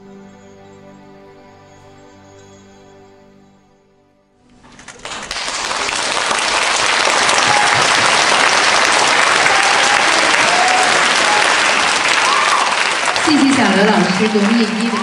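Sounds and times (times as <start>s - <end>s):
soft music notes: 0.0s - 5.0s
audience applause: 4.6s - 15.0s.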